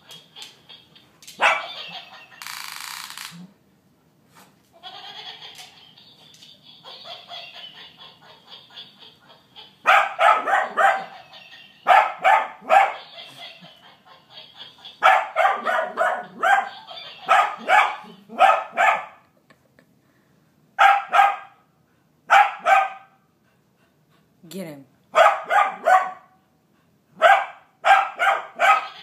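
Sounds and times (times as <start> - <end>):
toy monkey electronic laugh: 0.0 - 3.4, 4.8 - 9.9, 11.0 - 11.9, 13.0 - 15.1, 16.2 - 18.3, 28.7 - 29.0
dog barking in bursts: 1.4 - 1.8, 9.8 - 11.1, 11.9 - 13.0, 15.0 - 19.2, 20.8 - 21.6, 22.3 - 23.2, 25.1 - 26.4, 27.2 - 29.0.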